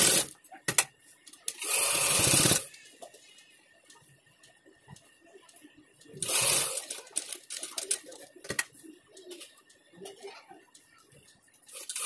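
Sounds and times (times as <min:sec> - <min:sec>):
sewing machine stitching: 0:01.6 - 0:02.7.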